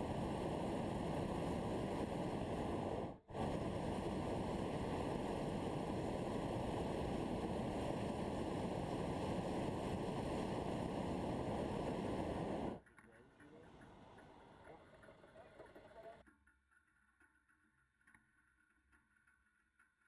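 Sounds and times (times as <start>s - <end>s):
steady rushing noise: 0.0s - 15.4s.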